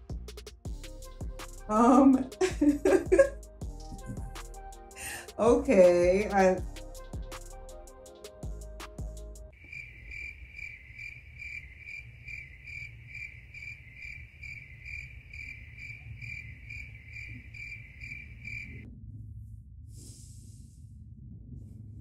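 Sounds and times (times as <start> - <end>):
low rumble: 2.5 - 4.8, 18.7 - 22.0
cricket chirping: 9.5 - 18.9.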